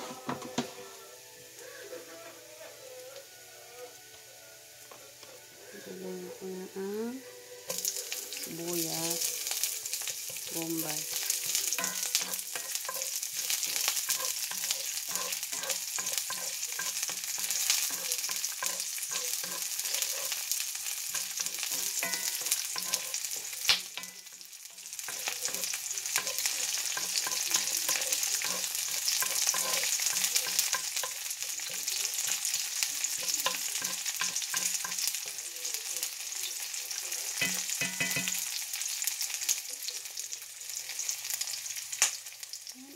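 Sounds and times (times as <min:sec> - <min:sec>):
onion sizzling in hot oil: 0:00.0 - 0:42.9
wooden spoon scraping a pan: 0:07.7 - 0:35.4.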